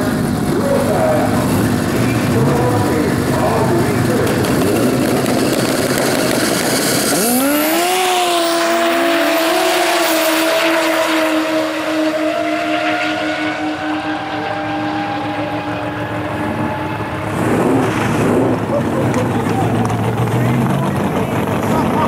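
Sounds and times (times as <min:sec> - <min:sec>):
snowmobile engines accelerating: 0:00.0 - 0:22.0.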